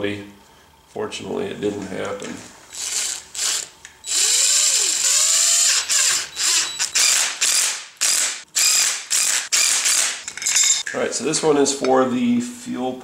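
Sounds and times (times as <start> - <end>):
impact driver bursts: 2.7 - 10.3.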